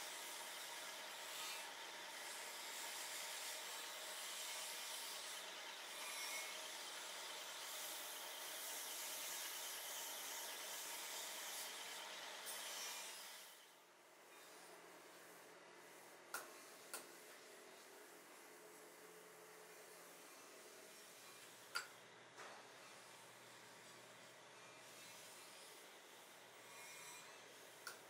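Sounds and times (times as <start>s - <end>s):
blades on grinding wheel: 26.6s - 27.5s.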